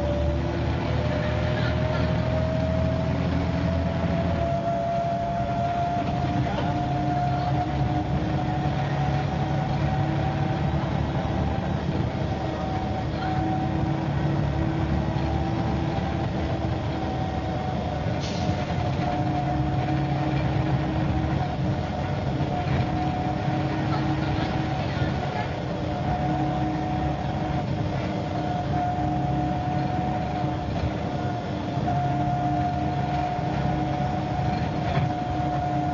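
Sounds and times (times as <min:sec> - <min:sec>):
bus engine whine and rumble: 0:00.0 - 0:35.9.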